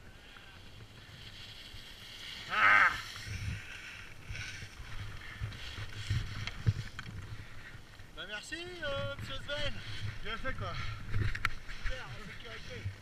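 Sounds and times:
ski edges scraping on snow: 0.1s - 13.0s
wind rumble on microphone: 3.0s - 8.2s, 8.8s - 13.0s.

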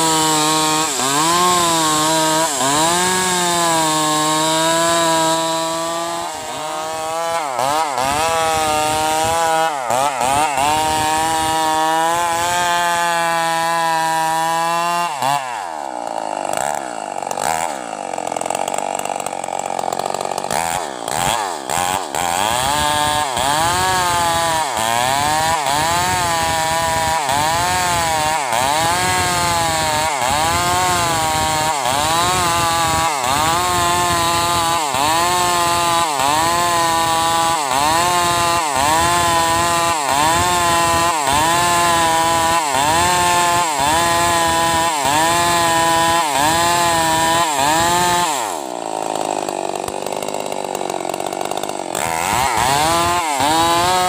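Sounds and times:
chainsaw cutting log: 0.0s - 54.0s.

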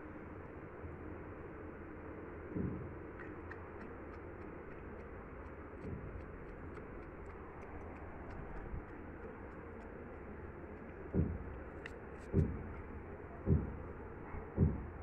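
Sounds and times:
steady low hum: 0.0s - 15.0s
soft low bump: 2.5s - 3.0s, 5.5s - 9.4s, 11.1s - 15.0s.

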